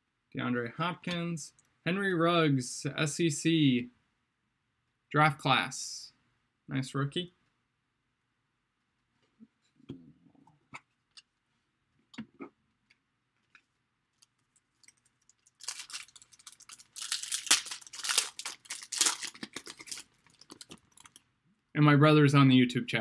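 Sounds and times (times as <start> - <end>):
plastic wrapper tearing and crinkling: 14.2 - 21.2.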